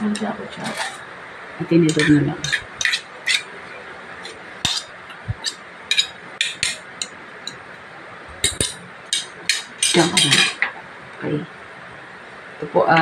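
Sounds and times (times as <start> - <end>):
metal utensil clinking on ceramic: 4.2 - 7.6.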